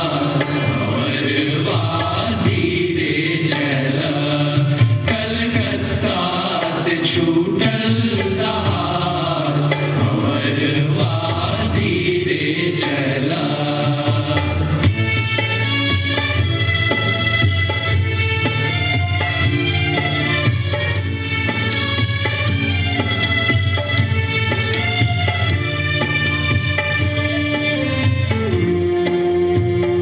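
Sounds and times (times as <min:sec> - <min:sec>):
group of singers chanting: 0:00.0 - 0:14.7
drum strokes: 0:00.0 - 0:30.0.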